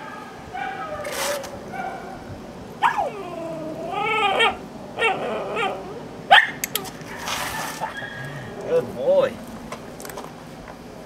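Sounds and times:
dog barking: 0.0 - 2.2, 4.4 - 8.2
dog whining: 2.8 - 9.1.

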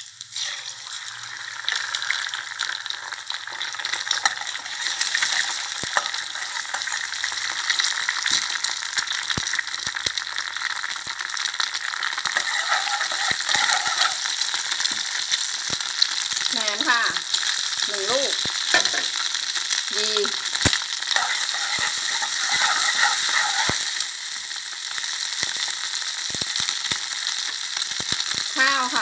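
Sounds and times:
egg sizzling in oil: 0.0 - 29.0.

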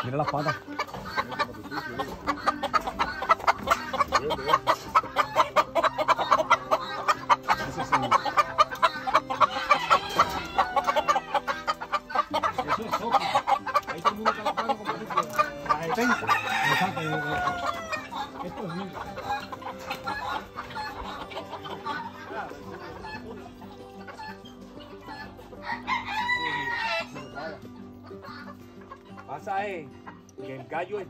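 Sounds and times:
roosters clucking: 0.0 - 31.0
rooster crowing: 16.1 - 18.0, 25.6 - 27.1.

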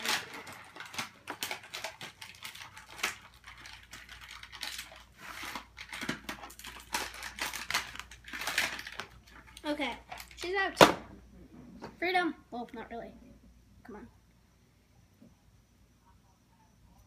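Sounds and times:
toy packaging rustling: 0.0 - 10.8.

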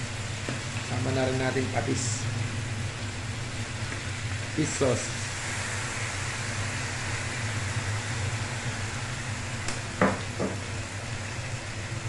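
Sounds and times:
food sizzling in a wok: 0.0 - 12.0
steady low hum: 0.0 - 12.0.

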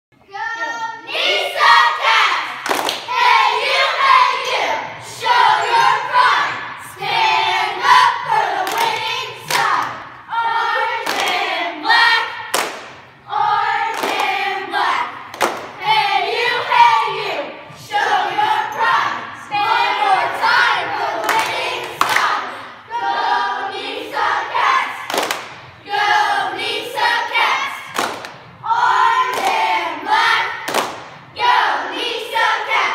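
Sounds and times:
girls chanting a cheer: 0.2 - 32.9
claps and thuds: 12.5 - 13.1, 15.3 - 15.8, 25.1 - 25.6, 27.9 - 28.4, 30.6 - 31.2.

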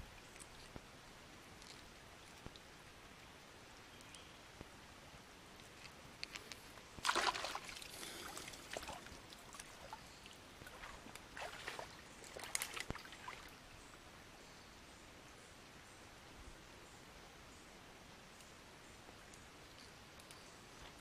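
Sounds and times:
water splashing and dripping: 7.0 - 13.6.

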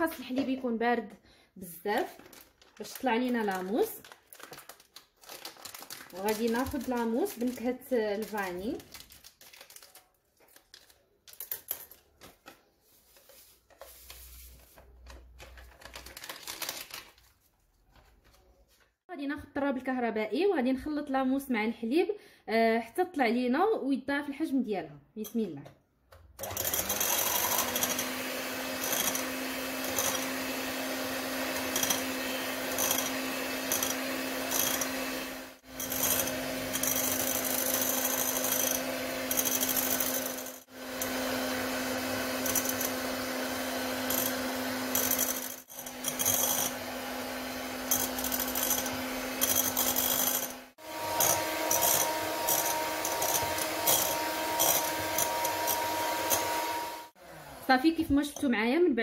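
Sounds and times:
electric hand mixer running: 26.4 - 58.0.

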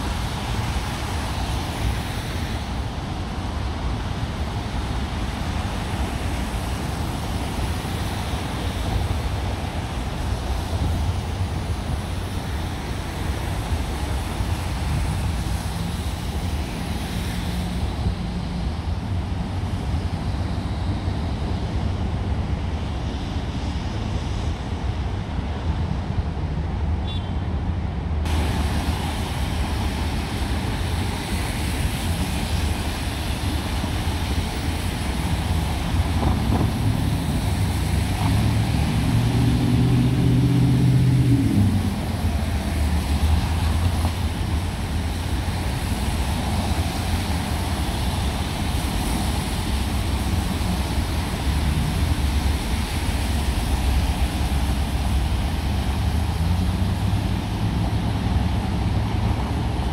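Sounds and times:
traffic on wet street: 0.0 - 59.9
vehicle engine hum: 28.0 - 59.9.

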